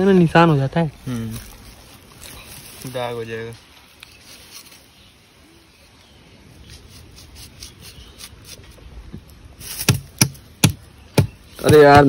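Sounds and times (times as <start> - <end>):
sickle blade rasping against mango: 6.6 - 8.8.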